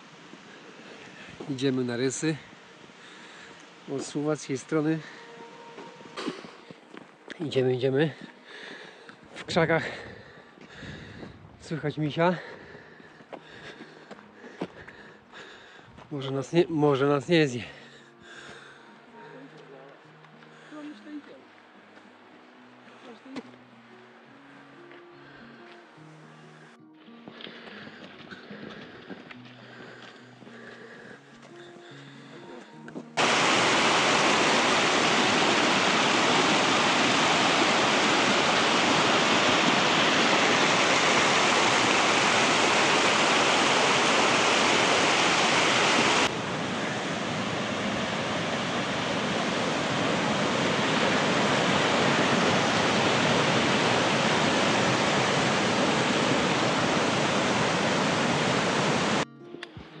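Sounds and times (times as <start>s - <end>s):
mountain stream rushing: 0.0s - 6.8s, 33.2s - 59.2s.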